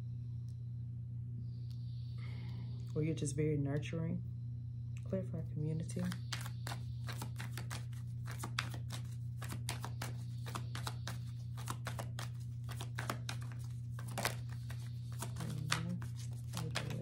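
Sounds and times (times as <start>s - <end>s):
steady low hum: 0.0s - 17.0s
cards being shuffled: 5.9s - 17.0s.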